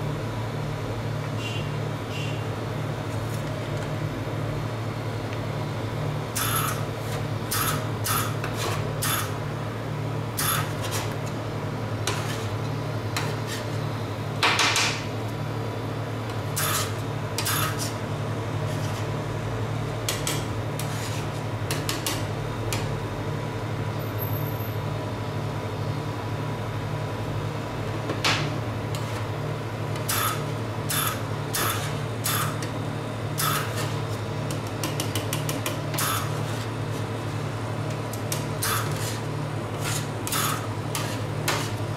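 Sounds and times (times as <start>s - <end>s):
low machine hum: 0.0s - 41.9s
spatula scraping on metal plate: 12.1s - 12.6s, 38.7s - 41.8s.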